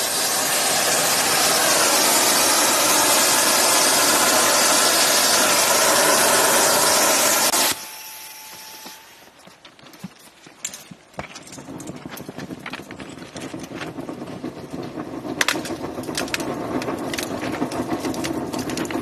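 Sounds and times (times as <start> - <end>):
thermite rushing crackling burn: 0.0 - 7.7, 9.7 - 19.0
sharp ignition clicks: 11.7 - 19.0.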